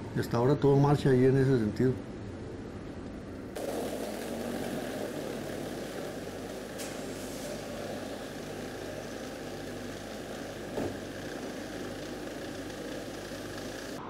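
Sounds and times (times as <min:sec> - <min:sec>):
vehicle engines idling: 0:03.6 - 0:14.0.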